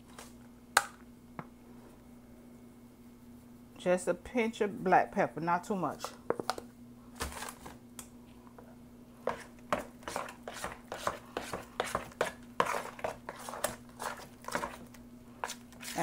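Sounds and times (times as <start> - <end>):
spoon stirring batter in bowl: 9.3 - 16.0.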